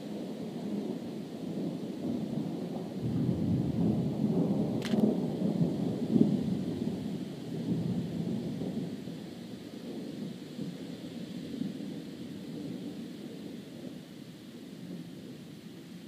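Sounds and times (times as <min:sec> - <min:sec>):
rolling thunder: 0:00.2 - 0:13.5
sharp click: 0:04.8 - 0:05.0.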